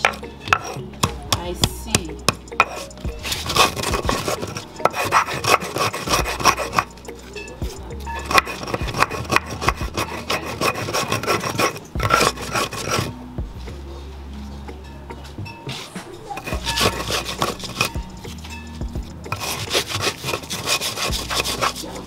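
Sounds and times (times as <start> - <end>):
stone scraping on grinding stone: 0.0 - 0.8, 2.3 - 7.3, 8.0 - 13.2, 16.4 - 18.6, 19.2 - 22.0.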